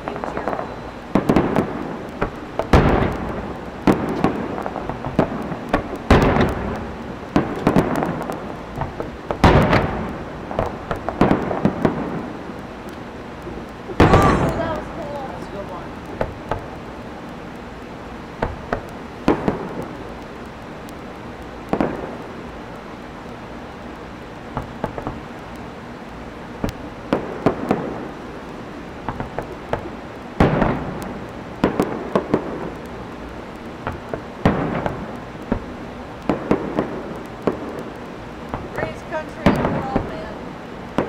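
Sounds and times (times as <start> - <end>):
fireworks bangs and booms: 0.0 - 41.0
small fireworks pops: 0.0 - 41.0.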